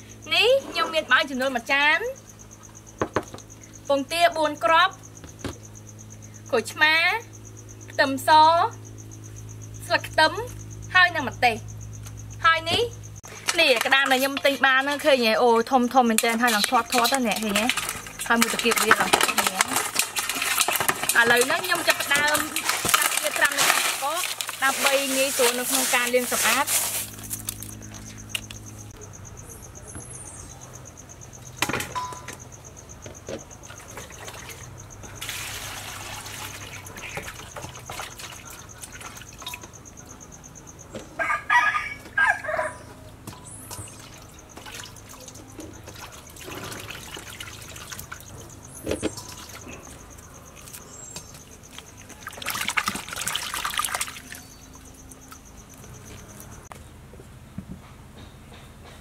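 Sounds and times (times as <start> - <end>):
water and ice sloshing in bowl: 13.2 - 28.5, 33.6 - 40.0, 43.4 - 56.6.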